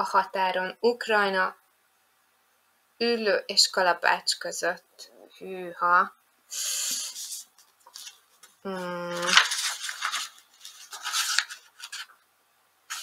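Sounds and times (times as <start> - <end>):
book pages rustling: 7.0 - 12.2.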